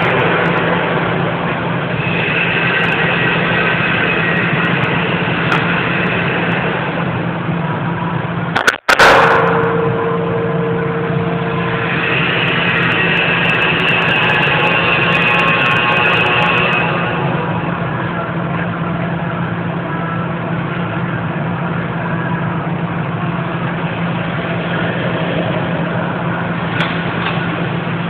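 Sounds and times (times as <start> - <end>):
machine humming and hissing: 0.0 - 28.0
sharp crack: 8.6 - 10.9.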